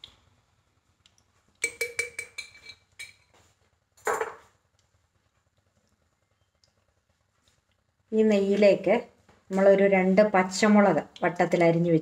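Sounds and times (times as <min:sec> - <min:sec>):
metal spoon clinking glass jar: 0:01.6 - 0:03.3
spoon scraping jar: 0:01.6 - 0:03.3.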